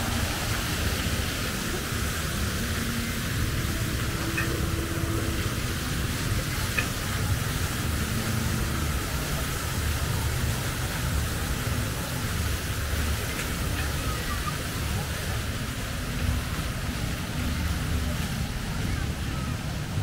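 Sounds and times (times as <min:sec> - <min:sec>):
continuous hiss: 0:00.0 - 0:20.0.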